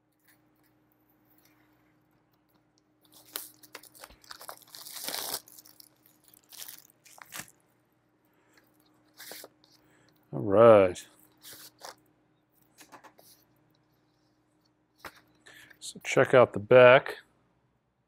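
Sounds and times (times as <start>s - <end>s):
plastic shrink wrap crinkling: 3.0s - 7.6s.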